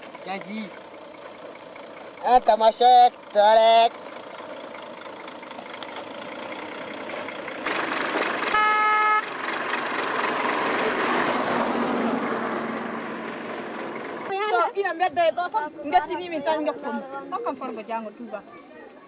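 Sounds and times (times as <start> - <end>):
pickup truck driving on dirt road: 0.0 - 17.2
truck horn honk: 8.4 - 9.4.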